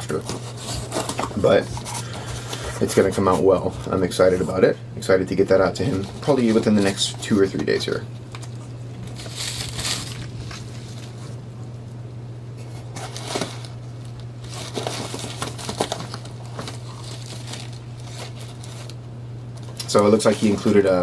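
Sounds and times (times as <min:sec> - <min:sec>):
paper packaging crinkling: 0:00.0 - 0:04.6, 0:05.4 - 0:11.4, 0:12.6 - 0:19.0, 0:19.6 - 0:21.0
steady low hum: 0:00.0 - 0:21.0.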